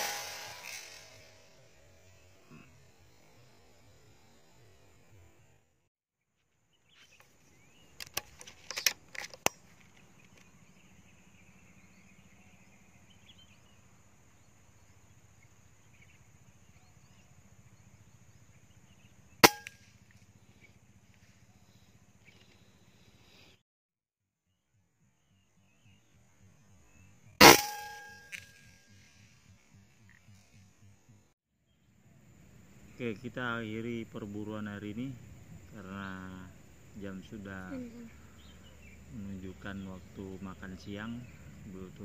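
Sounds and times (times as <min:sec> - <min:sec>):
air rifle shot: 0:00.0 - 0:01.6, 0:19.4 - 0:19.8, 0:27.4 - 0:28.3.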